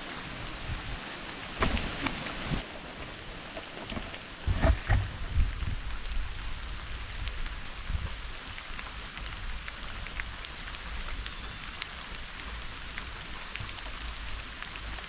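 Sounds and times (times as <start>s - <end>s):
steady rain falling: 0.0s - 15.0s
raindrops ticking: 5.1s - 15.0s.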